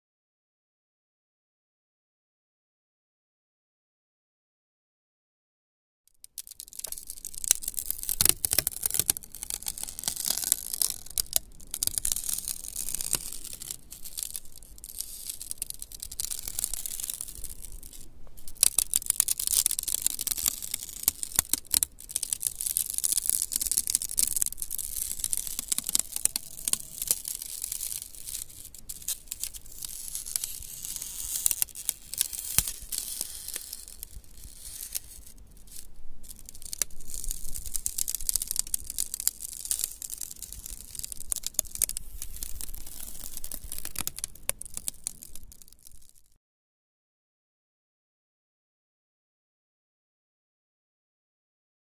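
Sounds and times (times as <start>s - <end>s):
icy branches crackling: 6.3s - 46.3s.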